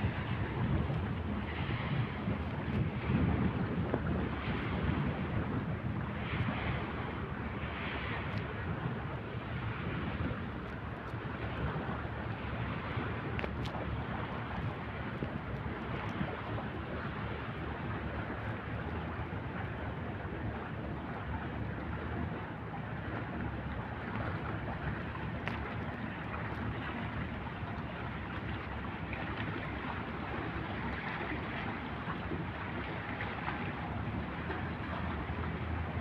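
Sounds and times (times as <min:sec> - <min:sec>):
wind buffeting microphone: 0:00.0 - 0:36.0.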